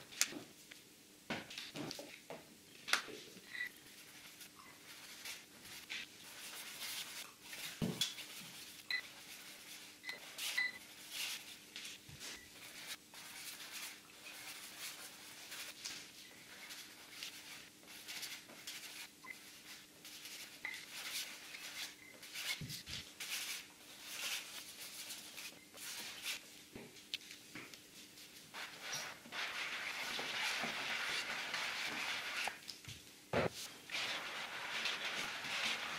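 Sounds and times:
paintbrush scrubbing a board: 0:03.8 - 0:11.6, 0:12.3 - 0:26.4, 0:28.5 - 0:32.6, 0:33.5 - 0:35.9.

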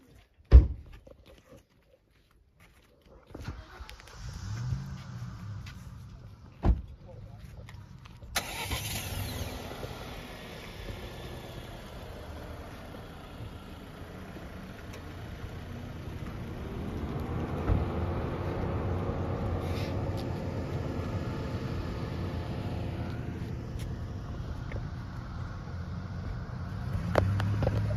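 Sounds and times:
thump: 0:00.5 - 0:00.9, 0:06.6 - 0:06.9, 0:17.6 - 0:17.9
car engine running: 0:03.6 - 0:27.9
low rumble: 0:09.4 - 0:27.9.

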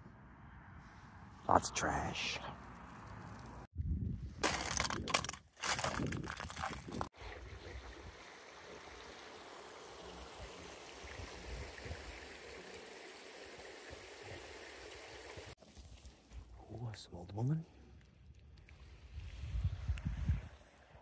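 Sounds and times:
footsteps crunching on gravel: 0:04.4 - 0:07.1
water rushing through sluice gate: 0:07.2 - 0:15.6.

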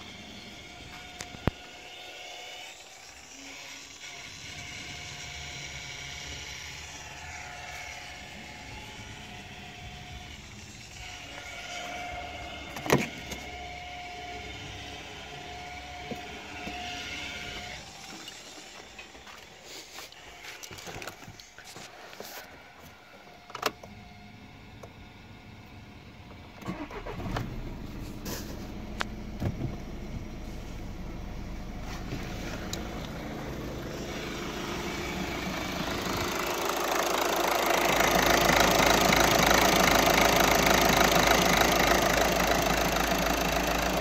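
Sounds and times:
diesel engine idling: 0:04.3 - 0:20.1, 0:26.6 - 0:44.0.

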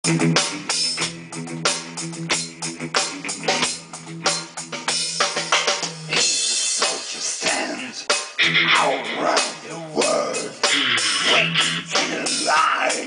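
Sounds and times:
rock band playing live: 0:00.0 - 0:13.0.

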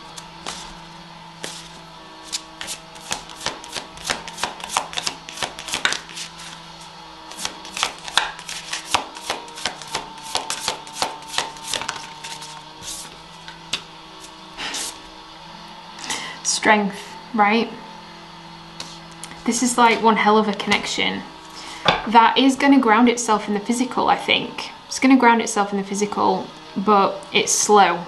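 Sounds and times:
cards shuffling snaps: 0:02.3 - 0:06.6, 0:07.3 - 0:13.9.

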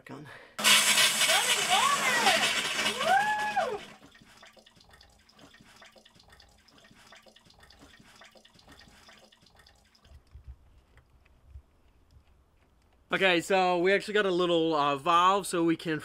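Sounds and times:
water rushing from pipe: 0:00.6 - 0:10.1
water trickling: 0:01.1 - 0:10.4.

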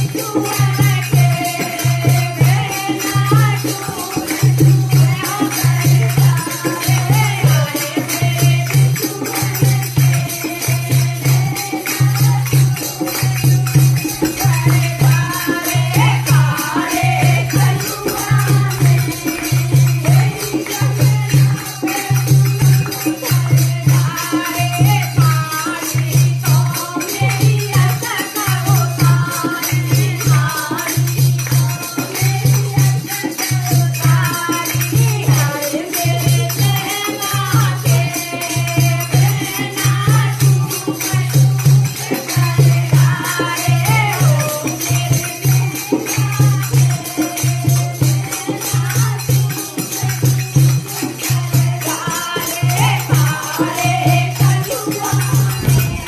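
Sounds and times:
jingling percussion: 0:00.0 - 0:56.0
deep drumbeat: 0:55.2 - 0:56.0.

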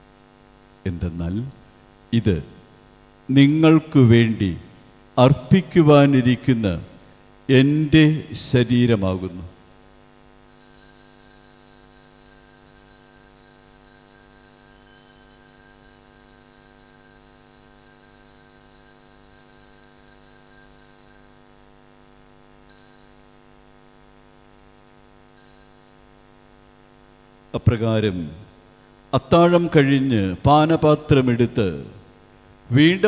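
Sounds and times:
low electrical hum: 0:00.0 - 0:33.0
altar bell ringing: 0:09.9 - 0:21.9, 0:22.7 - 0:23.7, 0:25.4 - 0:26.4.

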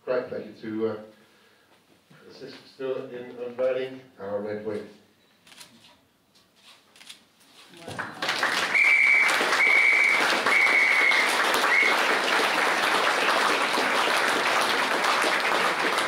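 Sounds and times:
audience applauding: 0:07.9 - 0:16.0
short high whistles: 0:08.6 - 0:12.1.

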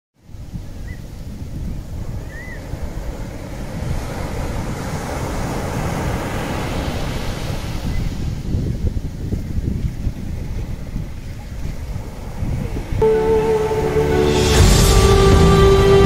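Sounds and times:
wind: 0:00.2 - 0:16.0
waves rushing: 0:01.8 - 0:08.6, 0:11.2 - 0:16.0.

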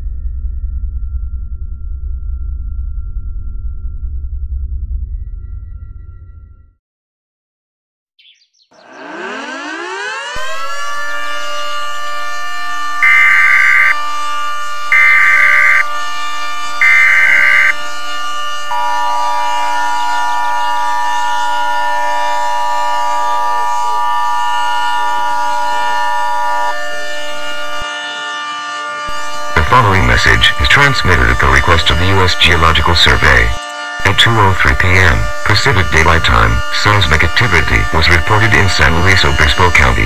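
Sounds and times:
siren winding up: 0:08.8 - 0:40.0
screeching data bursts: 0:13.0 - 0:14.0, 0:14.9 - 0:17.8
two-tone attention signal: 0:13.0 - 0:14.0, 0:14.9 - 0:15.9, 0:16.8 - 0:17.8.

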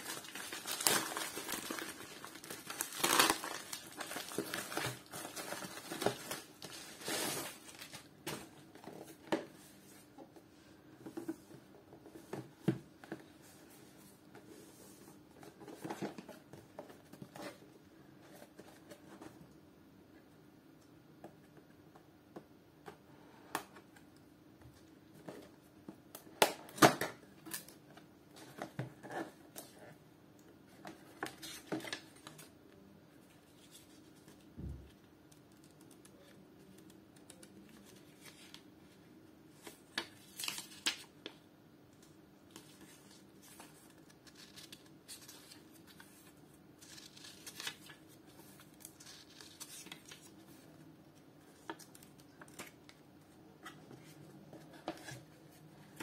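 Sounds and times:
paper booklet rustling: 0:42.5 - 0:50.6.

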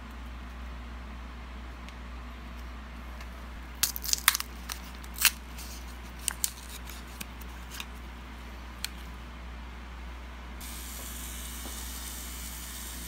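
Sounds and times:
steady low hum: 0:00.0 - 0:13.0
plastic film crinkling: 0:03.8 - 0:07.9.

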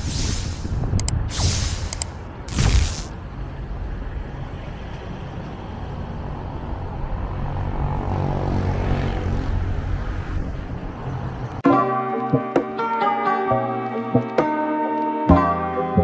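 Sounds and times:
street traffic rumble: 0:00.0 - 0:11.6
vehicle passing: 0:02.2 - 0:11.6.

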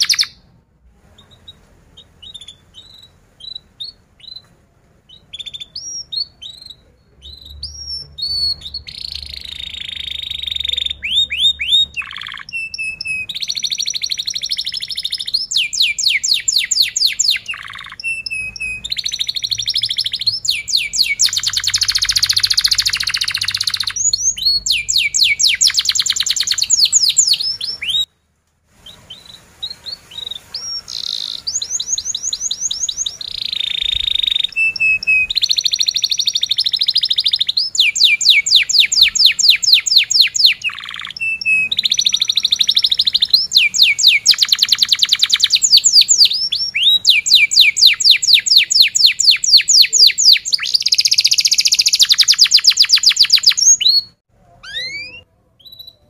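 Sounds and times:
canary singing trills: 0:00.0 - 0:00.5, 0:01.2 - 0:04.5, 0:05.1 - 0:28.1, 0:28.8 - 0:56.0.

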